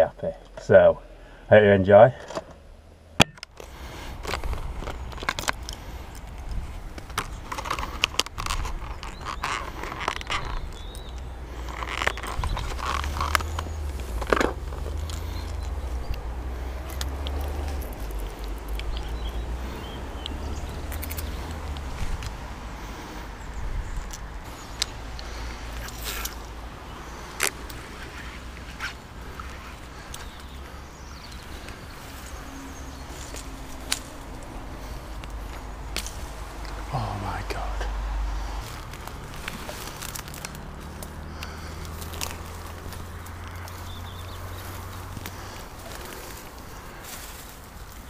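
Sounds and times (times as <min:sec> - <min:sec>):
plastic pack crackling and clicking: 0:03.2 - 0:16.2, 0:38.6 - 0:43.8
wind rumble on microphone: 0:12.2 - 0:24.6
steady low rumble: 0:28.6 - 0:48.0.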